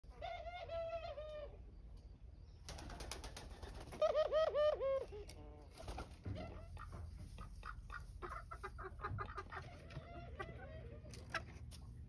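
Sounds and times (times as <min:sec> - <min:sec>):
wings flapping: 0:02.7 - 0:04.2
dove cooing: 0:03.8 - 0:05.4.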